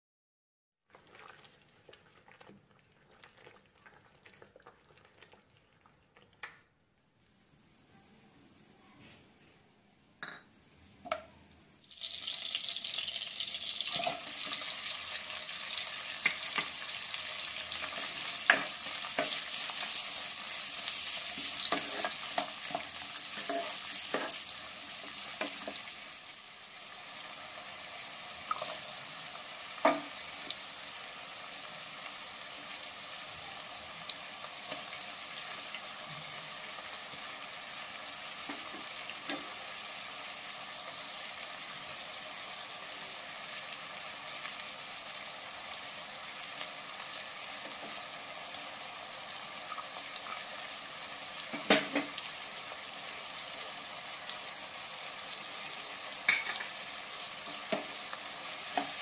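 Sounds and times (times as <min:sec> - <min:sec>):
onions sizzling in hot oil: 0:11.8 - 0:59.0
spatula scraping and tapping wok: 0:16.1 - 0:17.0, 0:17.7 - 0:20.1, 0:20.9 - 0:25.9, 0:57.4 - 0:59.0.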